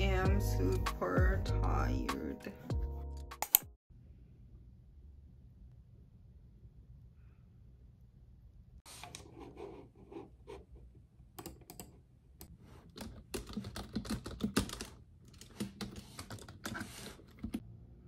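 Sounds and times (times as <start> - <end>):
computer keyboard typing: 11.4 - 12.0, 12.9 - 17.6.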